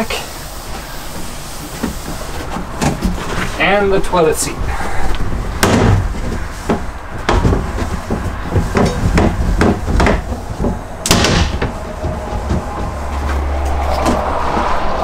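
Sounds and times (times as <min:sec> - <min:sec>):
rag scrubbing plastic seat: 0:00.7 - 0:15.0
knocks against plastic: 0:05.6 - 0:13.2.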